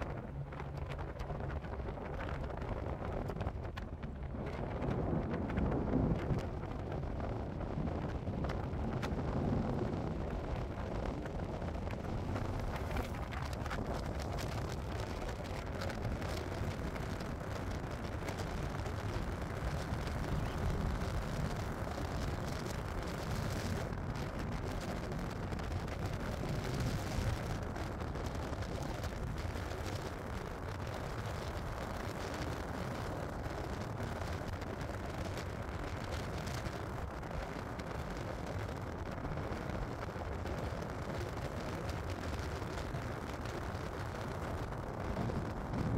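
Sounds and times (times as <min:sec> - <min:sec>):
low thunder rumble: 0:00.0 - 0:29.6.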